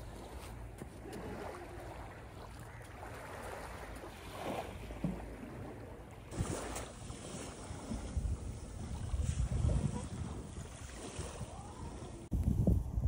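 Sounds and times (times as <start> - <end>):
waves washing on shore: 0.0 - 12.3
wind rumbling on microphone: 6.3 - 13.0.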